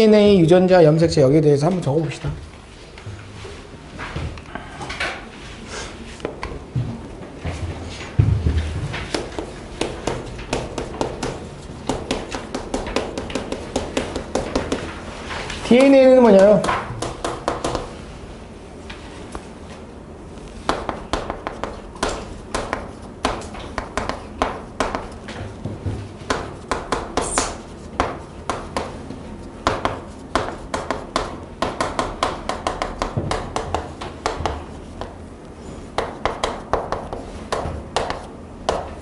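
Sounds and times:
chalk tapping on a chalkboard: 0:09.1 - 0:14.9, 0:15.8 - 0:17.9, 0:20.6 - 0:35.2, 0:35.9 - 0:39.0.

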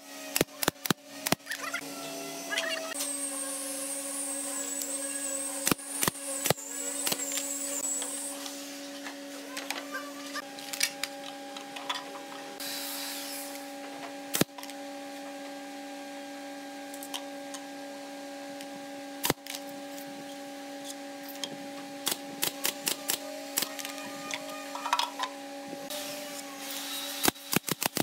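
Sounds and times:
steady mechanical hum: 0:00.0 - 0:28.0
pneumatic nail gun shots: 0:00.3 - 0:01.6, 0:05.6 - 0:07.9, 0:14.3 - 0:14.6, 0:22.0 - 0:24.0, 0:26.7 - 0:28.0.

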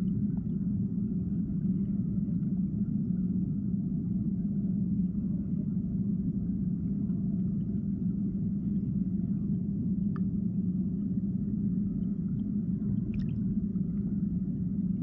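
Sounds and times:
underwater river rumble: 0:00.0 - 0:15.0
faint click: 0:10.1 - 0:10.3.

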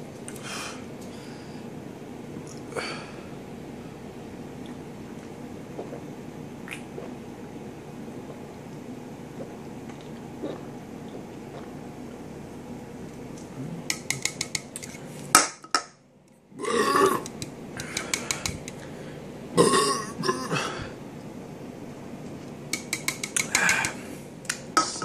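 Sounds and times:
man gulping: 0:04.6 - 0:07.2, 0:09.3 - 0:12.2, 0:16.6 - 0:18.0, 0:19.6 - 0:21.0
man belching loudly: 0:16.6 - 0:17.2, 0:19.6 - 0:20.5.

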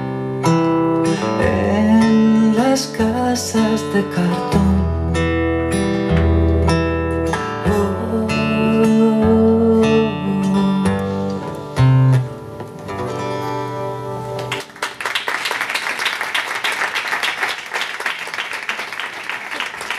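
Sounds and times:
acoustic guitar playing: 0:00.0 - 0:14.7
audience applause: 0:14.4 - 0:19.9.

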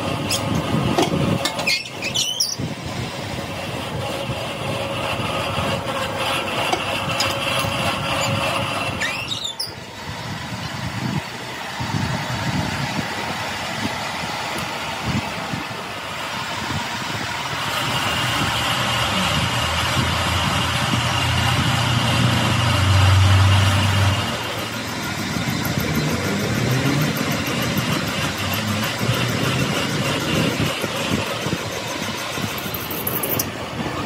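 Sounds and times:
machine whining: 0:00.0 - 0:34.0
brief sweeping squeal: 0:01.7 - 0:02.6, 0:09.0 - 0:09.8.

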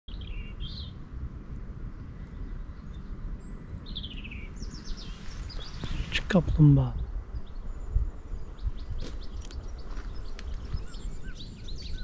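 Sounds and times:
low background rumble: 0:00.1 - 0:12.0
songbirds chirping: 0:00.1 - 0:12.0.

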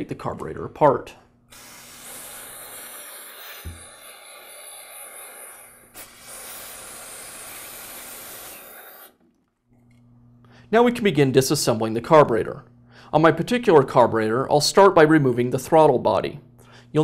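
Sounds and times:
aerosol spray hiss: 0:01.5 - 0:09.2.

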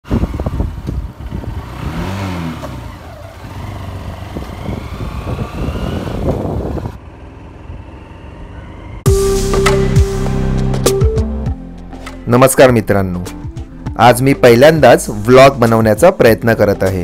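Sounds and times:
wind buffeting microphone: 0:00.0 - 0:02.4, 0:04.0 - 0:07.0
motorcycle engine running: 0:00.0 - 0:09.2.

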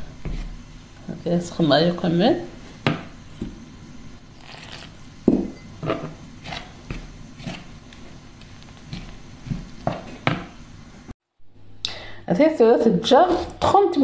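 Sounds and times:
metal spoon scraping bowl: 0:04.4 - 0:07.7.

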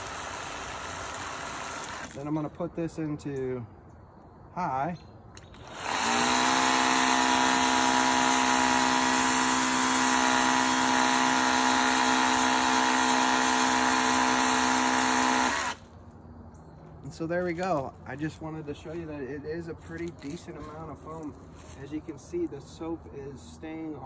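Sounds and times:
electric pump motor whine: 0:05.6 - 0:15.8.

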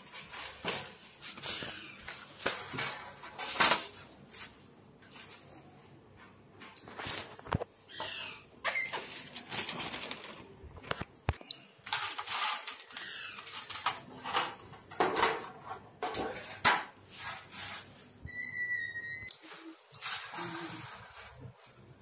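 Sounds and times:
newspaper rustling and crackling: 0:09.0 - 0:11.1
high-pitched squeak: 0:18.2 - 0:20.9.

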